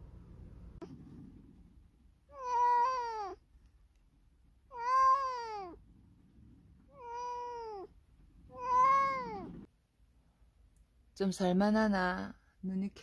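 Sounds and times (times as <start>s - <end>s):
cat meowing: 2.3s - 3.4s, 4.7s - 5.8s, 6.9s - 9.7s.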